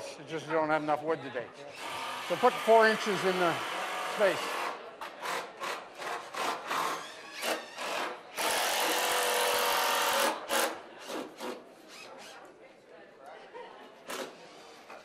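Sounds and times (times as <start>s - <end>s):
cordless drill driving a screw: 6.3s - 12.4s.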